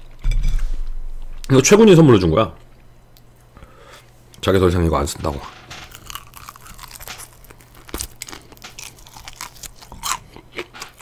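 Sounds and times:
crunching and chewing fried chicken: 5.9s - 11.0s.

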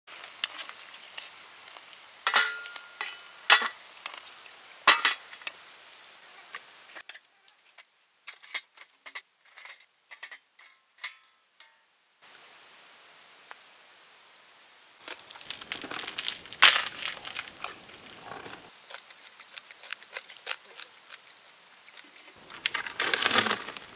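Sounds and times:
crisp crackles and crunches: 0.1s - 10.3s, 15.0s - 23.9s
hot oil sizzling: 0.1s - 23.9s
metal utensil clanking on pan: 2.2s - 5.6s, 6.5s - 11.9s.

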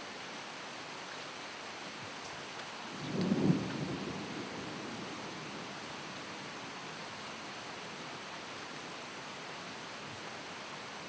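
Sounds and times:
low rumble of thunder: 2.9s - 5.8s.

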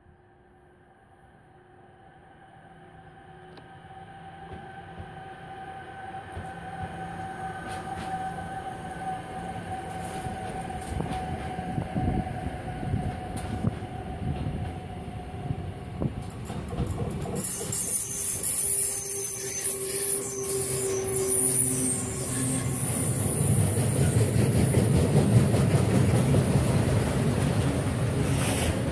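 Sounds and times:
electric locomotive whine: 0.0s - 28.9s
wheels clacking on track: 16.1s - 18.5s, 23.2s - 28.6s.

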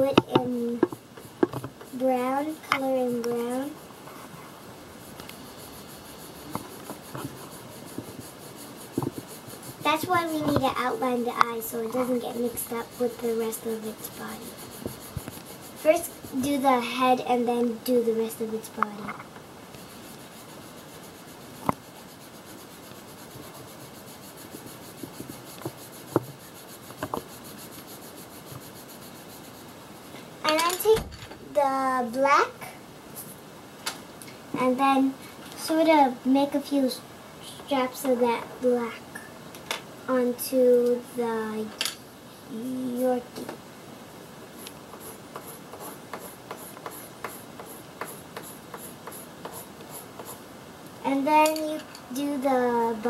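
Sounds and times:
pencil scratching on paper: 0.0s - 29.9s, 44.5s - 50.4s.

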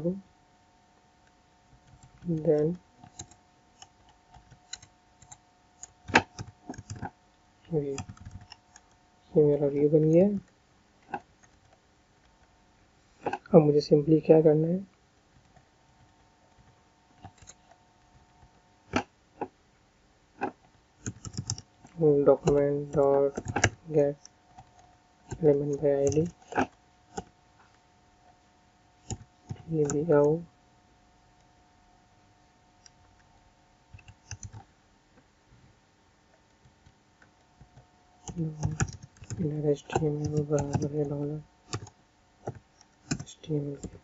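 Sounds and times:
faint steady hum: 0.0s - 44.0s
computer keyboard keystrokes: 3.0s - 7.1s, 8.0s - 9.0s, 15.4s - 17.7s, 21.0s - 23.8s, 29.0s - 30.0s, 33.9s - 34.6s, 37.7s - 41.0s, 41.7s - 44.0s
faint keyboard keystrokes: 8.0s - 9.0s, 20.4s - 25.4s, 33.9s - 34.7s, 36.4s - 41.0s, 41.6s - 44.0s.

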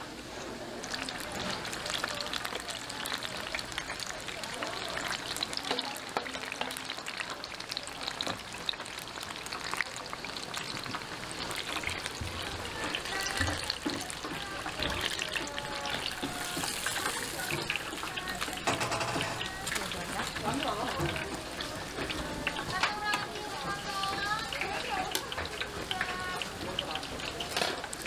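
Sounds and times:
food sizzling in hot oil: 0.0s - 28.0s
oil popping: 0.8s - 28.0s.

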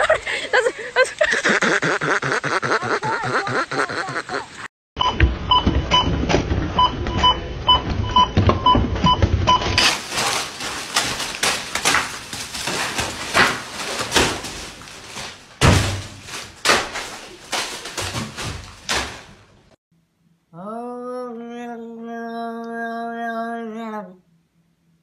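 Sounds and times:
knocks and bangs: 5.0s - 19.8s
rustling noise: 9.8s - 19.8s.

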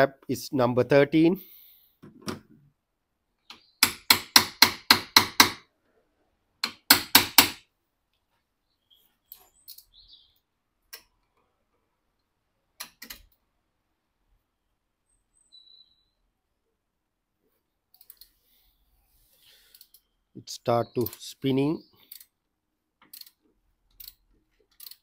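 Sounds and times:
wrench ratchet clicks: 22.1s - 22.3s, 23.0s - 23.4s, 24.0s - 25.0s.

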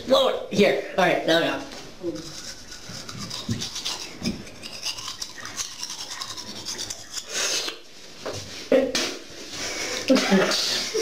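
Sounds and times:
toothbrush scrubbing teeth: 2.0s - 7.8s.

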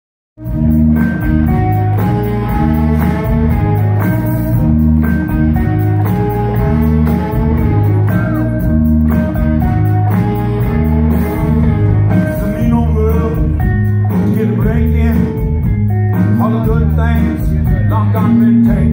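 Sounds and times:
keyboard and horns: 0.4s - 13.5s
blues-rock band playing: 0.4s - 18.9s
repeating bass line: 0.4s - 18.9s.

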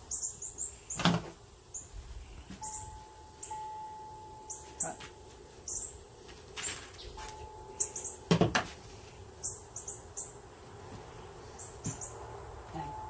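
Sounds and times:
high bird chirps: 2.6s - 3.8s, 4.4s - 5.0s, 5.6s - 6.0s, 6.6s - 8.3s, 9.4s - 10.4s.

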